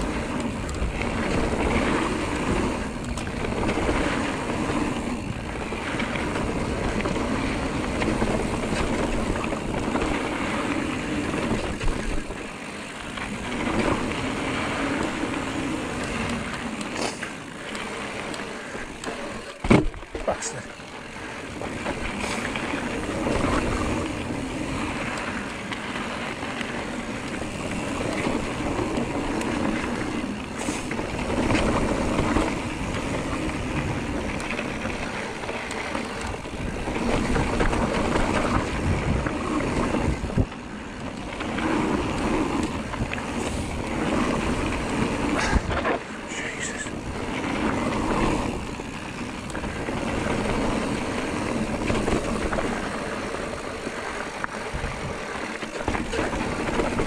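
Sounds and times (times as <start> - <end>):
bike tyres rumbling on dirt: 0.0 - 57.0
wind buffeting microphone: 26.8 - 57.0.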